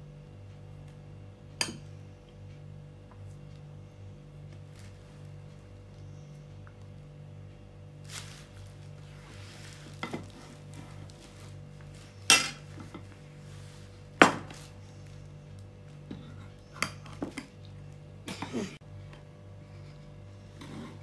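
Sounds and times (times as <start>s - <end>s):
metal spoon clinking against bowls: 12.3s - 13.0s.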